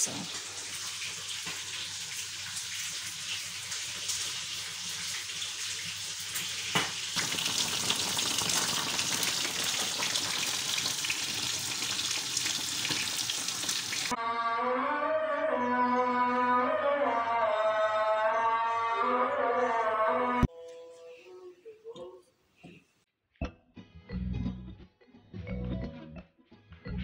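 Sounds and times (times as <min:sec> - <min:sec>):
kitchen hiss: 0:00.0 - 0:14.1
music: 0:14.1 - 0:21.6, 0:23.4 - 0:27.0.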